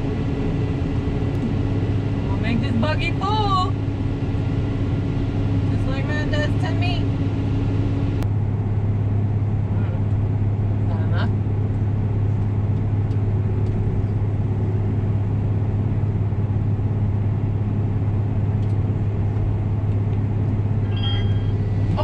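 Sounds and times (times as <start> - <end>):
combine harvester engine drone: 0.0 - 22.0
brief high tone: 20.9 - 21.6.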